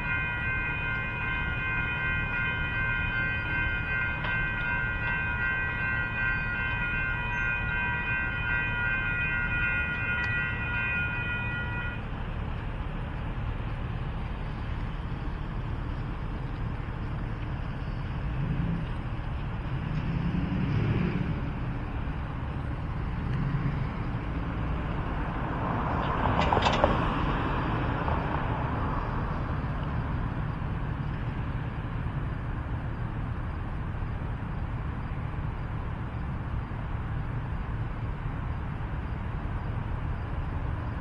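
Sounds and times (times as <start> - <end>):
steady low rumble: 0.0 - 20.0
cars passing on road: 0.0 - 41.0.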